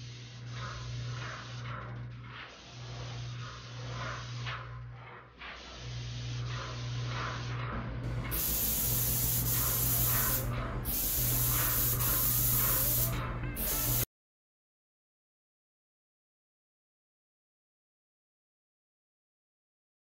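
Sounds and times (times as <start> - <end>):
paint spray gun hissing: 0.0 - 1.9, 2.5 - 4.6, 5.6 - 7.5, 8.1 - 14.1
low hum: 0.0 - 13.6.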